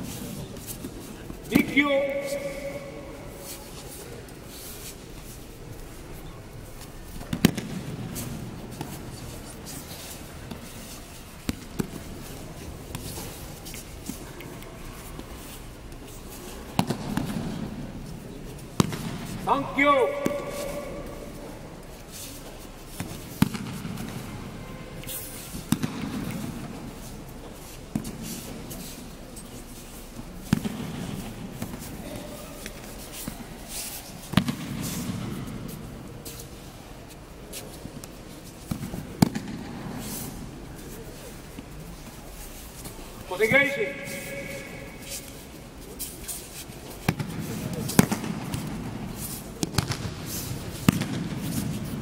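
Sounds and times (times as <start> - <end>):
rubbing and shuffling on mats: 0.0 - 52.0
bodies slapping on mats: 47.0 - 52.0.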